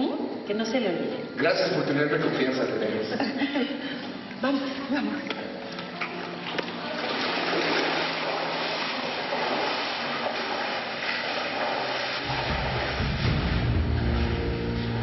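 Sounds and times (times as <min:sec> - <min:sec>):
pool water splashing: 0:01.4 - 0:15.0
low music: 0:03.4 - 0:15.0.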